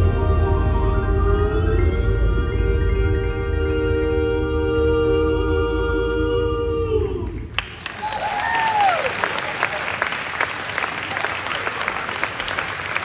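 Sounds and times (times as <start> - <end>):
vocal quartet singing a chord: 0.0 - 7.6
audience applause: 7.5 - 13.0
person whooping: 8.0 - 9.2.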